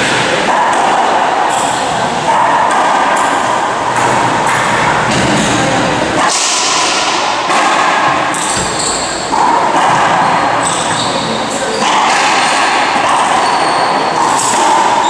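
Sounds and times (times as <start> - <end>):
ball hitting court walls: 0.0 - 15.0
ball smacking off racquet: 6.2 - 10.9, 14.2 - 15.0.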